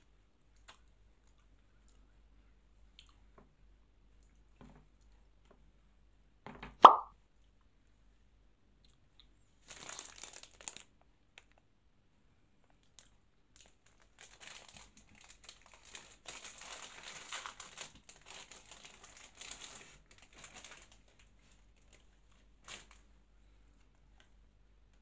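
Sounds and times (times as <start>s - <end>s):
plastic wrapper crinkling and tearing: 9.6s - 11.6s, 12.9s - 23.1s.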